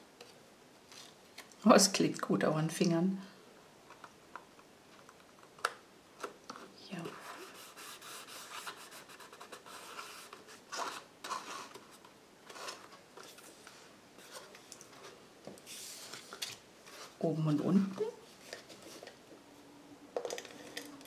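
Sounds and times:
hands rubbing paper: 7.0 - 17.2.

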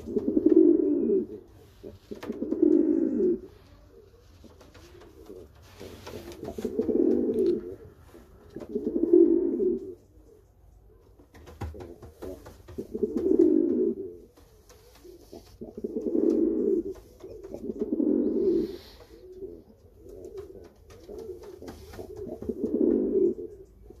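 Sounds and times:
pigeon cooing: 0.0 - 24.0.

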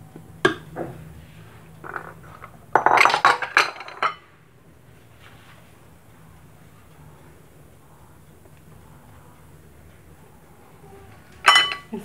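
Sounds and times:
ceramic bowl and utensils clinking: 1.8 - 4.3, 11.3 - 12.0.

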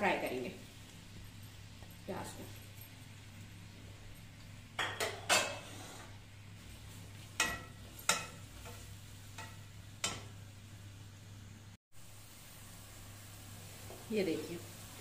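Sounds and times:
onions sizzling: 4.6 - 15.0
spoon scraping and knocking pot: 4.8 - 6.2, 7.4 - 10.3.

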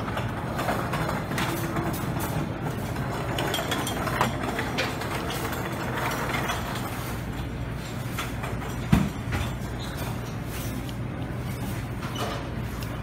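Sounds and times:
dish clicks and clatter: 0.0 - 7.2.

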